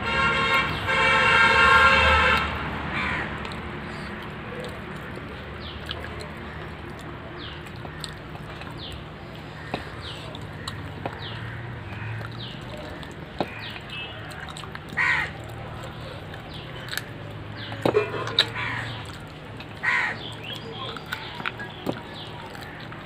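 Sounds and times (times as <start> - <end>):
loud horn steady tone: 0.0 - 2.8, 17.9 - 18.5.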